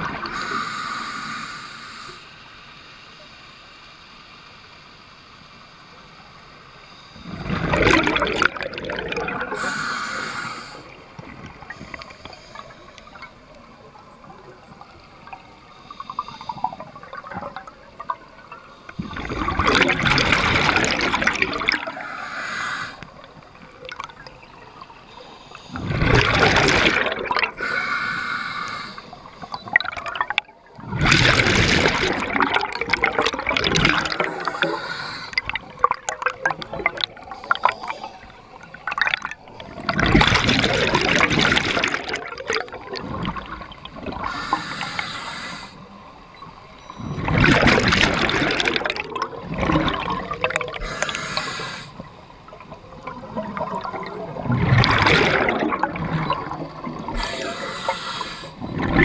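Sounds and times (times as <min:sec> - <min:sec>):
regulator hiss on inhale: 0:00.3 - 0:04.4, 0:09.5 - 0:13.8, 0:15.5 - 0:17.1, 0:21.8 - 0:23.2, 0:24.9 - 0:26.0, 0:27.5 - 0:29.7, 0:34.0 - 0:35.7, 0:37.2 - 0:38.8, 0:44.2 - 0:46.3, 0:50.8 - 0:52.2, 0:57.0 - 0:58.6
gurgling exhaled bubbles: 0:07.2 - 0:12.4, 0:19.0 - 0:24.6, 0:25.7 - 0:27.9, 0:29.4 - 0:37.9, 0:38.6 - 0:45.0, 0:46.3 - 0:51.8, 0:52.5 - 0:59.0.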